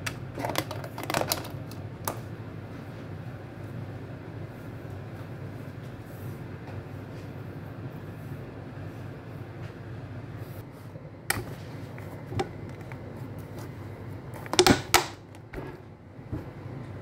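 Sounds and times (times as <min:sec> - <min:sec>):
steady low hum: 0:00.0 - 0:17.0
kitchen items knocking and clicking: 0:00.4 - 0:02.2, 0:14.4 - 0:15.8.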